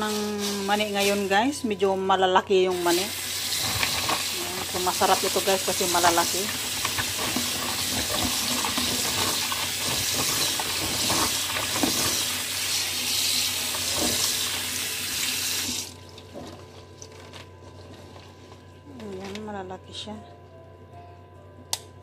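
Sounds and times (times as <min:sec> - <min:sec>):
tap water running into bowl: 0:03.1 - 0:16.3
hand stirring peanuts: 0:03.3 - 0:12.4.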